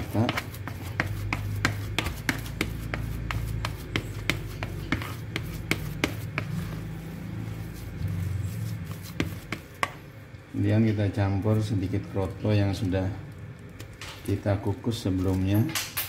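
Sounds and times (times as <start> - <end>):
plastic paddle scraping plastic basin: 0.0 - 10.0
low steady hum: 0.0 - 16.0.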